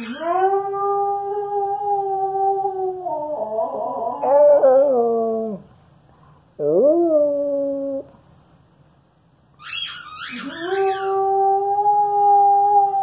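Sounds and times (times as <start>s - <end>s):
squeaky toy squeaks: 0.0s - 0.3s, 9.6s - 11.2s
dog howling: 0.0s - 5.6s, 10.4s - 13.0s.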